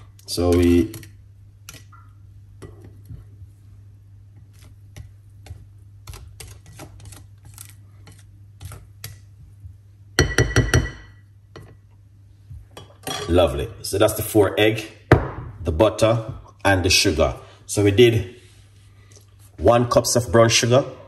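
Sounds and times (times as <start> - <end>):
utensil knocking on a bowl: 10.2 - 11.0.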